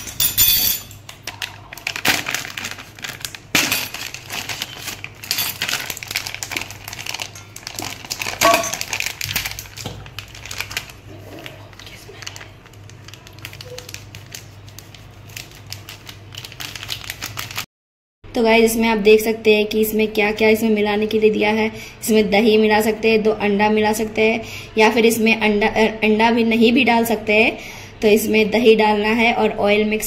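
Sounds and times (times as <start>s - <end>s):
foil packet crinkling: 1.0s - 17.7s.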